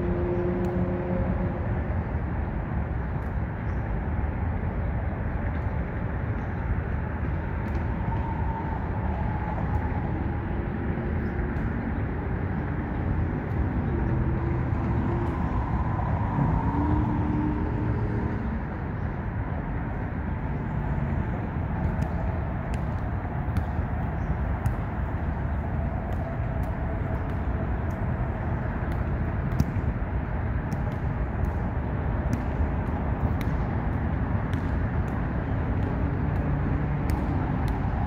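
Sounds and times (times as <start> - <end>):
passing vehicle tones: 0.0 - 1.9, 13.9 - 18.8
low rumble of road traffic: 0.0 - 38.0.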